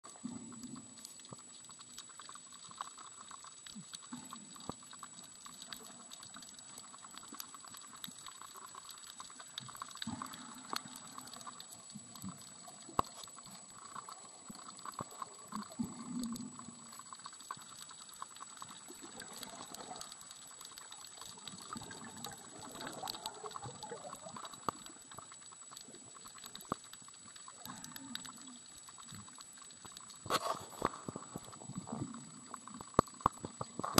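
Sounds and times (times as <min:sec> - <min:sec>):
muffled underwater water movement: 0:00.0 - 0:33.9
underwater clicks and crackles: 0:00.0 - 0:33.9.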